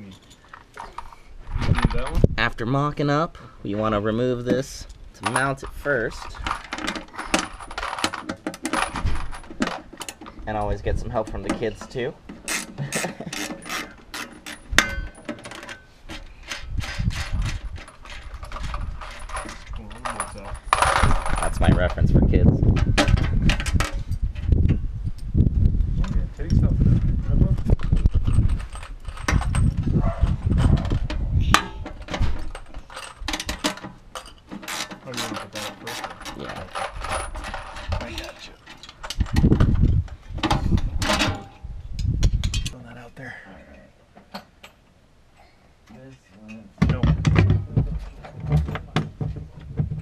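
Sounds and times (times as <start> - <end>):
metal parts knocking: 4.4 - 24.5, 27.8 - 42.8.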